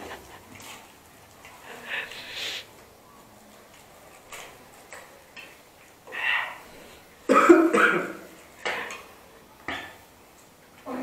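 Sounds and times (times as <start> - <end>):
person coughing: 7.3 - 8.2.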